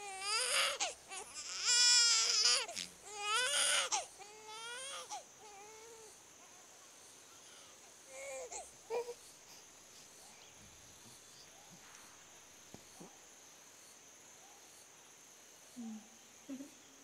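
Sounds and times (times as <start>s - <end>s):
baby crying: 0.0s - 6.1s.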